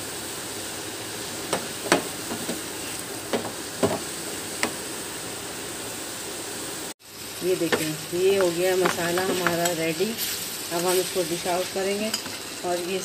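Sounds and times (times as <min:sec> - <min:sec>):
filling sizzling in a wok: 0:00.0 - 0:13.0
wooden spatula knocking on pan: 0:01.5 - 0:02.6, 0:03.3 - 0:04.8.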